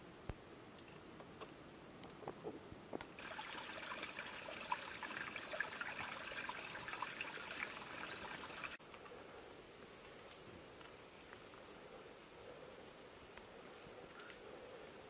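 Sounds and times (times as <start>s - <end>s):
outdoor background: 0.0s - 15.0s
small water splashes: 3.2s - 8.8s
stream babbling: 3.2s - 8.8s.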